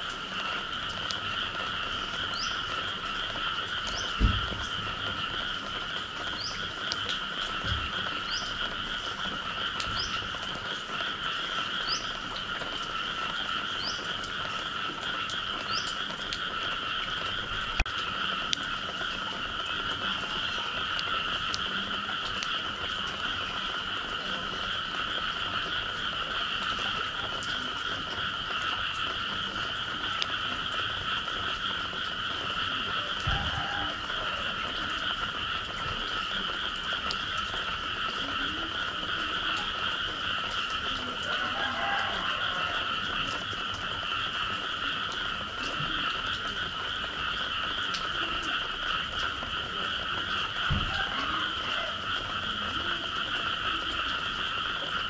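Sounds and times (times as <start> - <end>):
chorus of frogs calling: 0.0 - 55.0.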